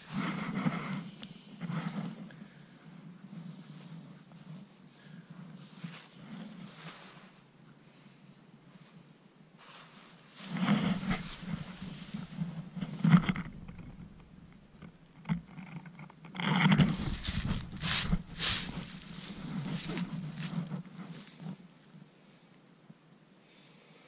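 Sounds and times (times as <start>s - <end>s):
footsteps on dry leaves: 9.6s - 14.2s, 16.8s - 21.5s.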